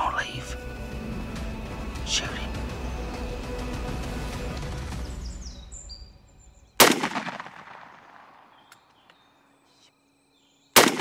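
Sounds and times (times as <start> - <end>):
shotgun blasts with echo: 6.8 - 8.5, 10.8 - 11.0.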